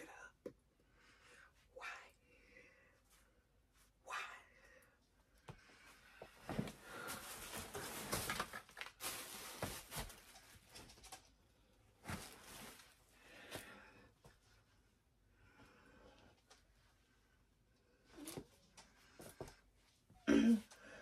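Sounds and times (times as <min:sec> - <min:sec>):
clothes and bags rustling: 0:06.2 - 0:11.3, 0:11.9 - 0:13.8.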